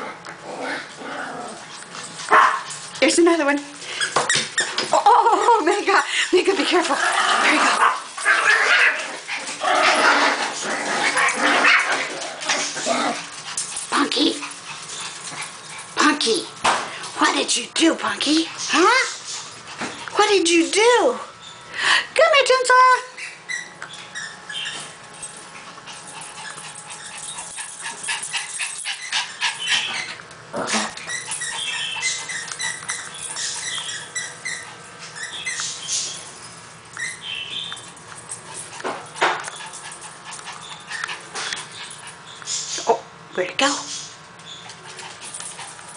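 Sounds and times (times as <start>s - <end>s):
small dogs barking and yipping: 1.8s - 3.2s, 3.8s - 16.6s, 22.7s - 42.9s
dog squeaky whines: 3.9s - 4.9s, 23.2s - 25.0s, 28.9s - 30.2s, 30.8s - 37.8s.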